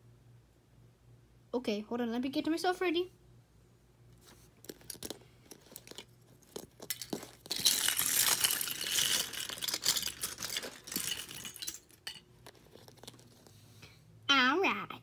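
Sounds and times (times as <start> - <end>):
plastic pieces rattling: 4.6 - 13.5.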